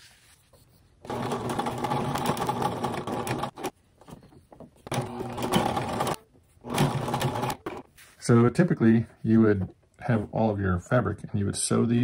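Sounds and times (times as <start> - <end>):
sewing machine stitching: 1.0 - 3.8, 4.8 - 7.9.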